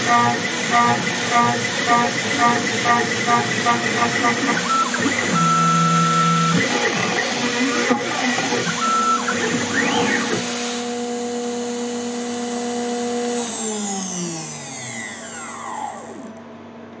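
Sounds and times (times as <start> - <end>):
spindle whine: 0.0 - 10.9, 14.1 - 16.5
axis motors whining: 0.0 - 11.0, 13.3 - 16.5.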